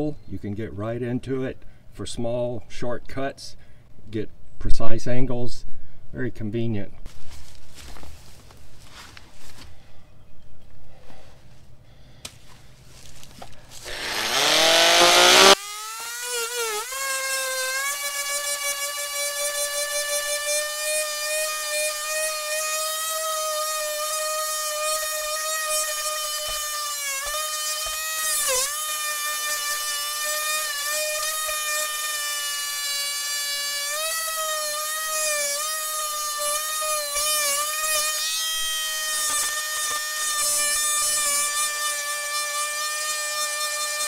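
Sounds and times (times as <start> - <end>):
oscillating multi-tool whining: 13.8 - 44.0.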